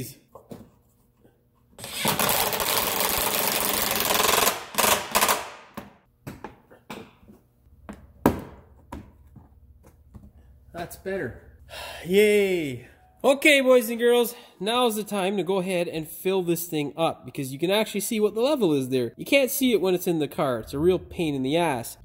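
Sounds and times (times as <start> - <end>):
impact driver hammering screw: 1.9 - 5.9.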